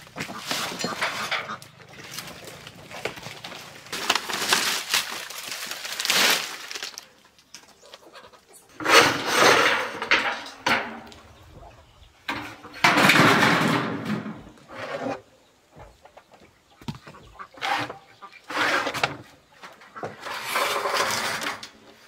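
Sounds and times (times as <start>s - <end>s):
roofing scraping rattle: 0.0s - 6.8s, 8.7s - 11.4s, 12.2s - 15.3s, 17.6s - 22.0s
dry thatch rustling: 0.0s - 7.6s.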